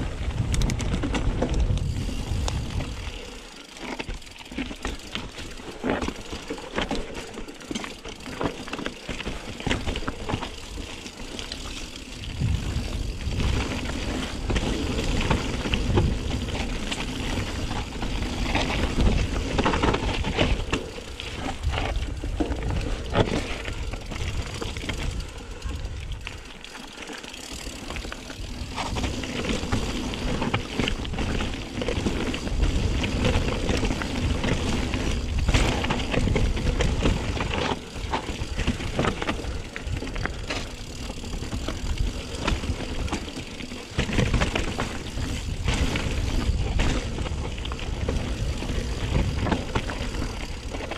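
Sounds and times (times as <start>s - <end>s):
wind rumble on microphone: 0.0s - 3.2s, 12.2s - 26.4s, 43.9s - 50.9s
bike tyre noise: 0.0s - 50.9s
bike clattering over bumps: 0.2s - 50.9s.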